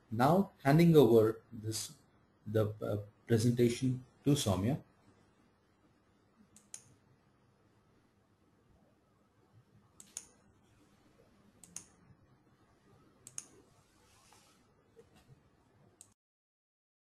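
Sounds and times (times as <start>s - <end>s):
computer mouse clicks: 6.5s - 7.0s, 10.0s - 10.4s, 11.6s - 12.0s, 13.2s - 13.6s.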